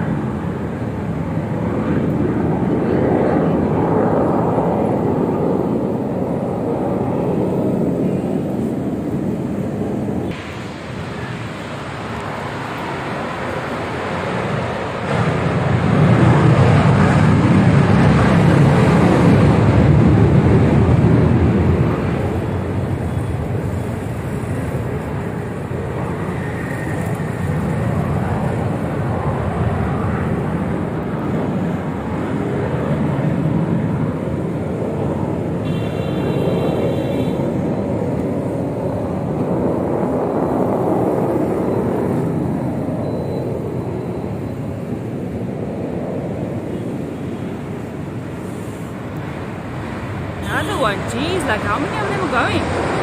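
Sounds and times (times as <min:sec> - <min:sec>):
jet aircraft taking off: 0:00.0 - 0:53.0
road traffic passing: 0:00.0 - 0:53.0
short high-pitched beep: 0:43.0 - 0:43.5.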